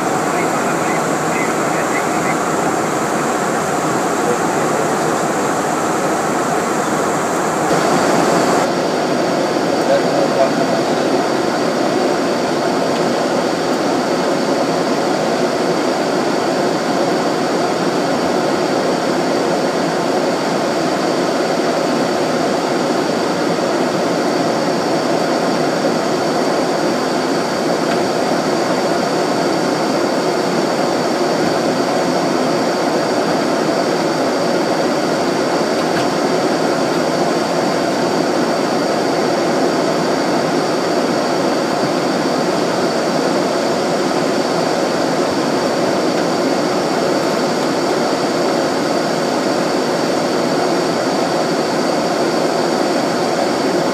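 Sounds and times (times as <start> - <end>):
rushing airflow over fuselage: 0.0 - 20.7
jet engine hum: 0.0 - 53.9.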